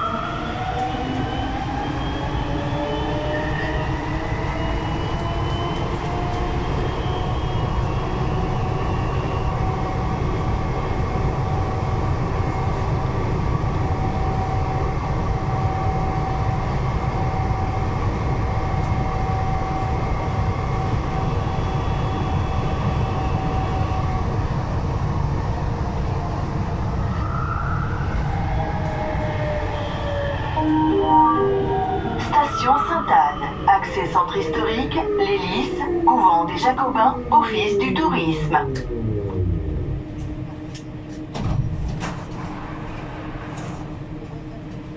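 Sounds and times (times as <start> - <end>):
metro train rumbling in tunnel: 0.0 - 44.9
constant whine: 30.3 - 44.9
rising tone: 30.4 - 33.1, 38.5 - 40.5.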